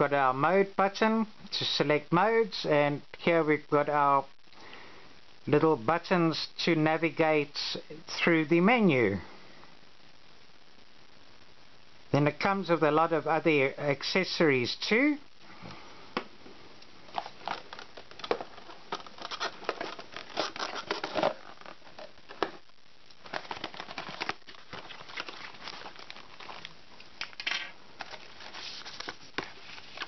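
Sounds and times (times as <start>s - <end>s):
cardboard and plastic rustling: 17.0s - 30.0s.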